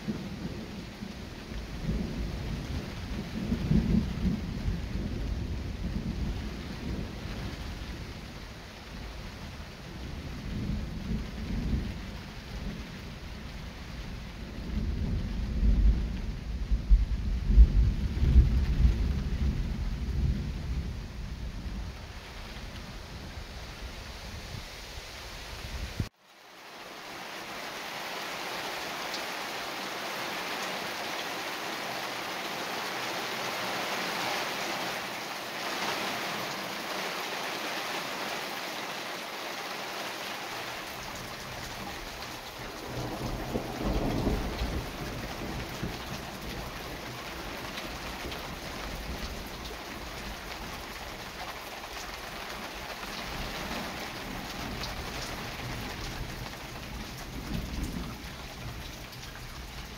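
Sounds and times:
thunder rumbling: 0.0 - 9.2, 9.9 - 23.9, 41.1 - 51.3, 53.3 - 59.9
rain falling: 0.0 - 59.9.

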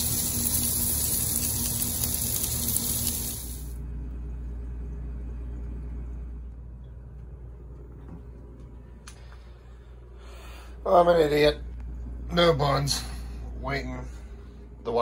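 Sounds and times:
meat sizzling on grill: 0.0 - 3.8
low quiet hum: 0.0 - 15.0.

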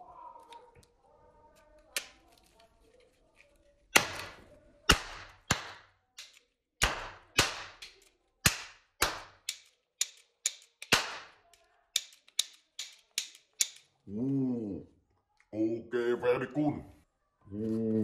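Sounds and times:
toy revolver firing sharp bangs: 3.9 - 13.8.

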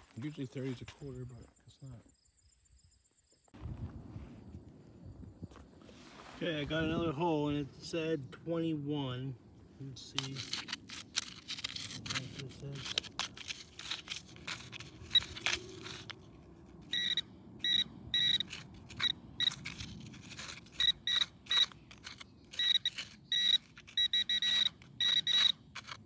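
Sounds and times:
probe scraping in dirt: 3.6 - 26.0
metal detector probe beeping: 14.5 - 16.0, 16.8 - 19.8, 20.6 - 26.0.

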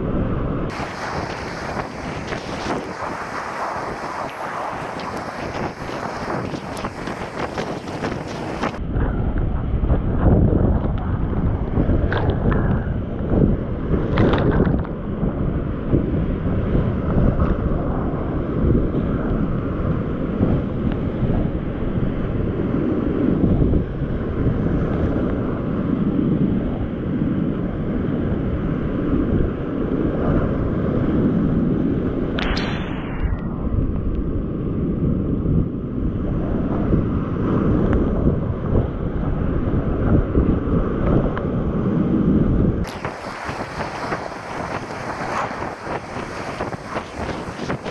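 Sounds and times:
sharp hiss of spray: 0.7 - 8.8, 42.9 - 47.9
water buffeting microphone: 0.7 - 8.8, 42.8 - 47.9
whitewater rapids crashing: 0.7 - 8.8, 42.9 - 47.9.

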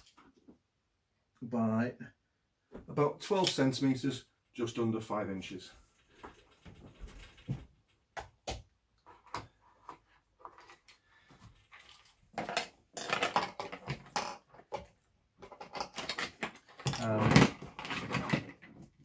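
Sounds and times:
rustling and scraping: 5.8 - 8.0, 9.0 - 19.0.

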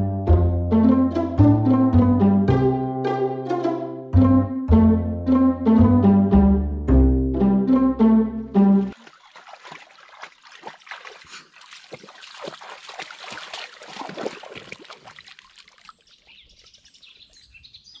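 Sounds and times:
dog splashing through puddle: 8.9 - 16.4.

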